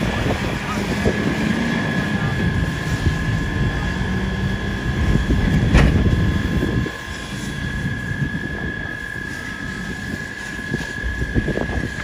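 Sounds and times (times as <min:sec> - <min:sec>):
high steady whine: 0:00.0 - 0:12.0
low engine rumble: 0:00.0 - 0:12.0.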